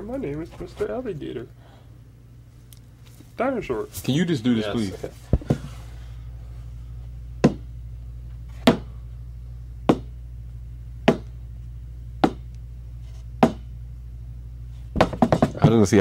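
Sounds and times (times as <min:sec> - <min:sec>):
steady low hum: 0:00.0 - 0:16.0
shoe knocking on wooden shelf: 0:07.4 - 0:07.6, 0:09.9 - 0:10.1, 0:11.1 - 0:11.3, 0:12.2 - 0:12.4, 0:13.4 - 0:13.6, 0:15.0 - 0:15.8.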